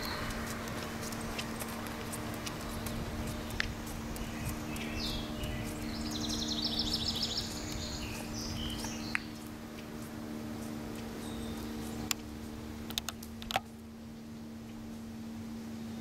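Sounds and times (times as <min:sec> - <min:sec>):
low hum: 0:00.0 - 0:16.0
songbird trilling: 0:02.4 - 0:12.2.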